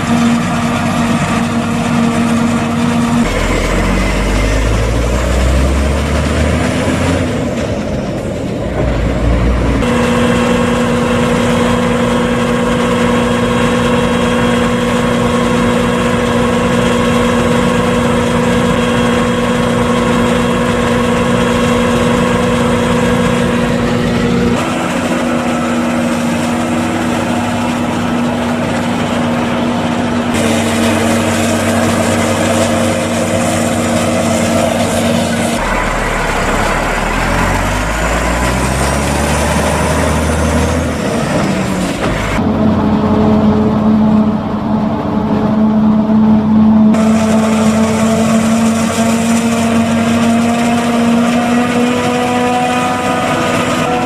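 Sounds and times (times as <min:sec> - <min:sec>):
forage harvester chopping corn: 0:00.0 - 0:07.8, 0:09.8 - 0:42.6, 0:47.0 - 0:54.0
truck engine pulling away: 0:00.0 - 0:54.0.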